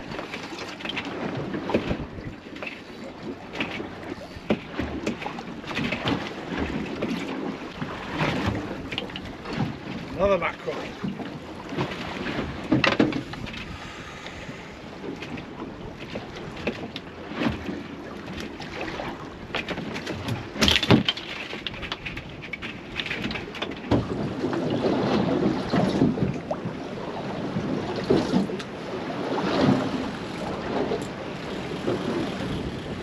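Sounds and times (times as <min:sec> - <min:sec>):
water sloshing against boat hull: 0:00.0 - 0:33.0
wind on microphone: 0:01.1 - 0:02.5, 0:10.9 - 0:16.8, 0:21.7 - 0:33.0.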